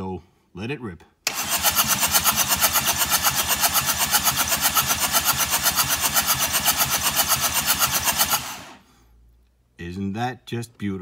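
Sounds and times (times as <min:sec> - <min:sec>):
engine cranking on starter motor: 0:01.3 - 0:08.8.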